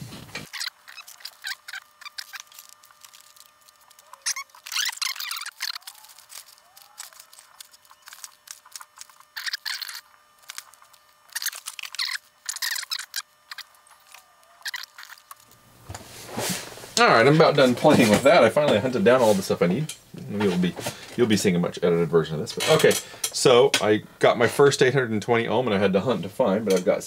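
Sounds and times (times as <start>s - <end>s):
plastic and paper bags crinkling: 0.0s - 15.6s.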